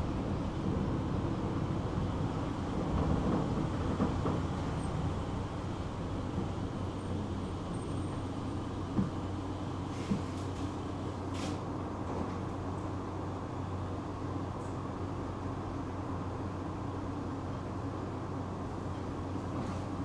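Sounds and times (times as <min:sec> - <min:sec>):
tram wheels rumbling: 0:00.0 - 0:20.0
sharp knocks from tram car: 0:02.7 - 0:05.4, 0:08.8 - 0:09.3, 0:09.9 - 0:10.6.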